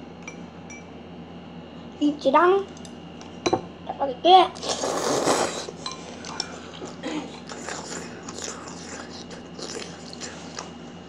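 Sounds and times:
child chewing crunchy food: 4.6 - 11.0.

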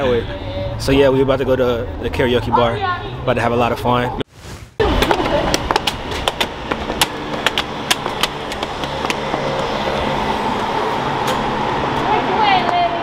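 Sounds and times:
street traffic hum: 0.0 - 13.0
footsteps on stairs: 5.0 - 10.0.

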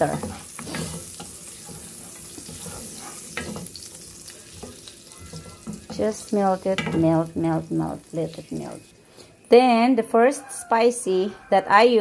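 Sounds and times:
wooden spatula stirring: 0.0 - 7.3
butter sizzling in a frying pan: 0.0 - 8.9.

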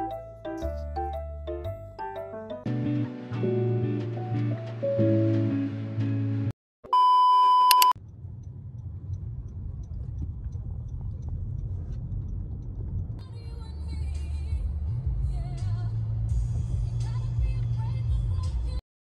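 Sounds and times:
electronic beep: 6.9 - 8.0
car interior road rumble: 8.0 - 18.8.

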